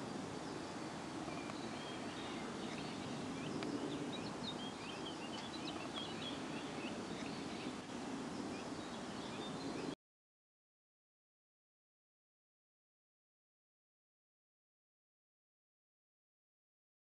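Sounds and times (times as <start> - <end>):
outdoor background noise: 0.0 - 10.0
small birds chirping: 0.0 - 10.0.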